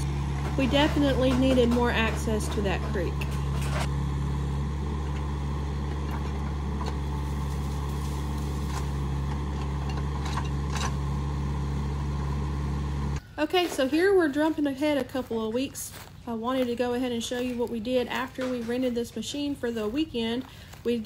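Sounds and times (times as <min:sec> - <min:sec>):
excavator diesel engine running: 0:00.0 - 0:13.2.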